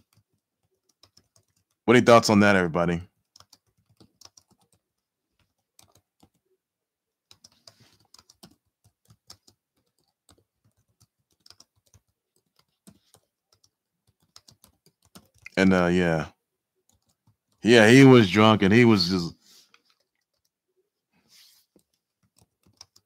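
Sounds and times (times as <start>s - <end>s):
keyboard typing: 0.0s - 1.8s, 3.1s - 6.6s, 7.2s - 15.8s, 16.8s - 17.8s, 19.7s - 20.8s, 21.7s - 23.0s.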